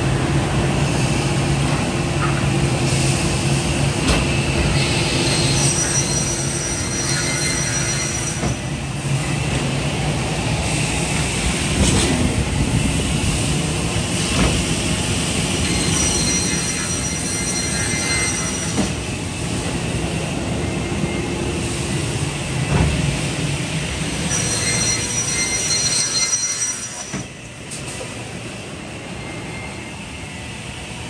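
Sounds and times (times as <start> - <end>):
thin high whine: 15.6 - 19.0, 24.2 - 27.3.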